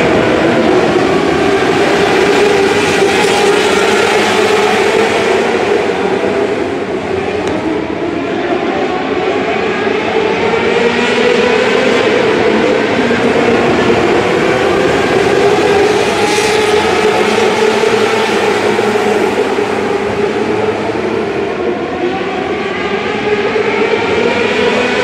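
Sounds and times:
race car engines droning: 0.0s - 25.0s.

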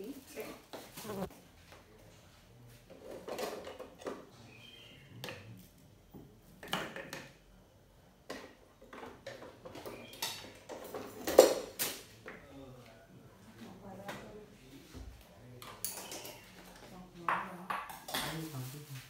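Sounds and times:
kitchen items knocking and clattering: 2.9s - 4.3s, 6.6s - 7.4s, 8.3s - 12.1s, 15.6s - 18.5s.

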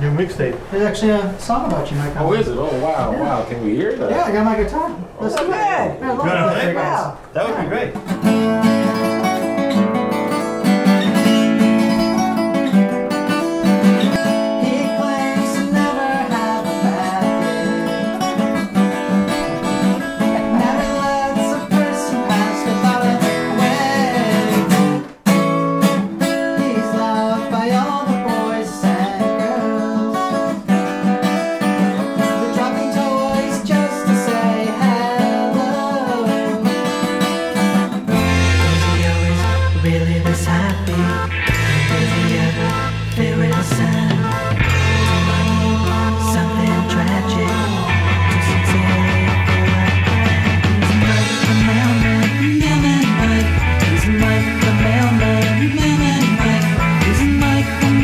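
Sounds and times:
acoustic guitar playing: 5.6s - 58.0s
man singing: 14.1s - 25.1s, 26.2s - 30.7s, 31.8s - 37.2s, 38.1s - 58.0s.

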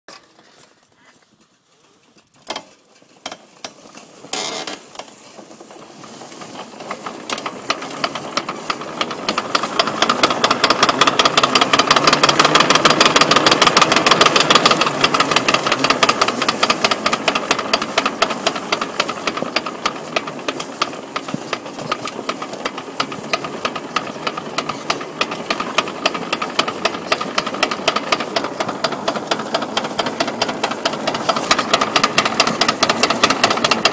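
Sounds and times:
engine running: 0.1s - 33.9s
rapid driveline knocking: 2.4s - 33.9s.

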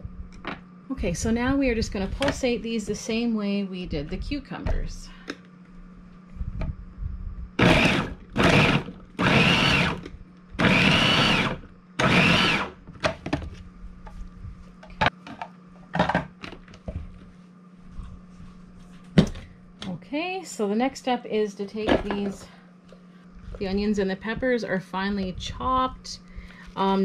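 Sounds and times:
food processor whining: 7.6s - 12.8s.

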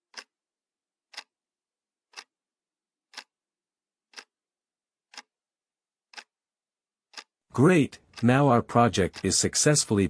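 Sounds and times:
clock ticking faintly: 0.0s - 0.4s, 1.1s - 1.4s, 2.0s - 2.4s, 3.1s - 3.4s, 4.0s - 4.4s, 5.0s - 5.4s, 6.1s - 6.4s, 7.1s - 10.0s.

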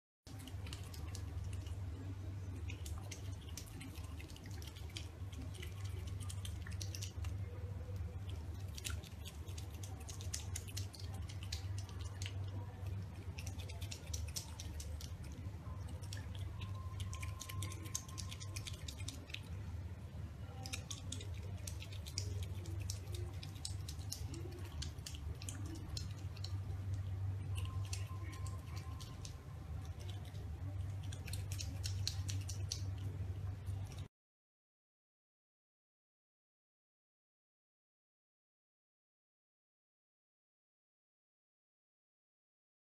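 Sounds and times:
animal crunching kibble: 0.3s - 19.6s, 20.4s - 34.1s
steady low hum: 0.3s - 34.1s.

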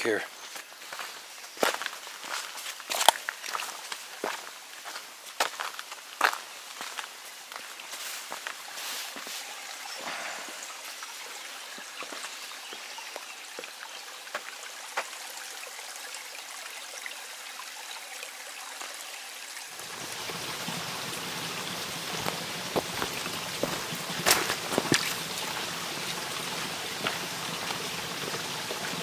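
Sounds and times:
footsteps on a trail: 0.0s - 10.6s, 11.2s - 15.2s, 21.9s - 25.8s, 26.4s - 28.4s
running water splashing: 0.8s - 29.0s.

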